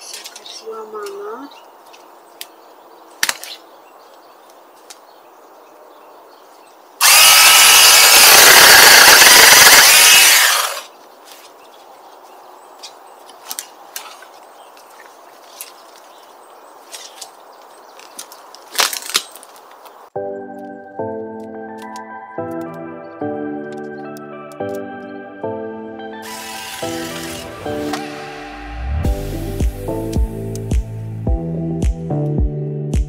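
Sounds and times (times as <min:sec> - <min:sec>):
power saw cutting wood: 0:07.0 - 0:10.9, 0:26.2 - 0:28.7.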